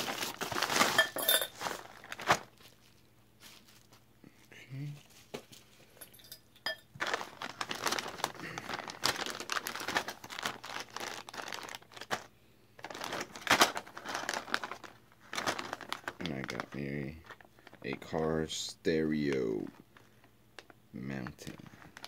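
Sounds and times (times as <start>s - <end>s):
plastic bags crinkling: 0.0s - 4.1s, 6.9s - 18.2s, 21.4s - 22.0s.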